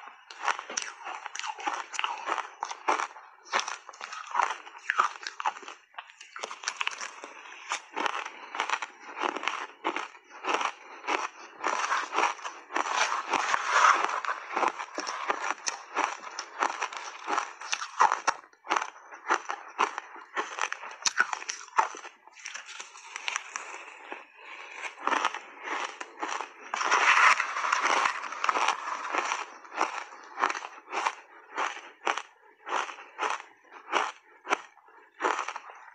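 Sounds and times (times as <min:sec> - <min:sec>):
shaved ice crunching when chewed: 0:00.0 - 0:35.9
metal spoon scraping ice: 0:12.8 - 0:15.8, 0:26.7 - 0:29.4.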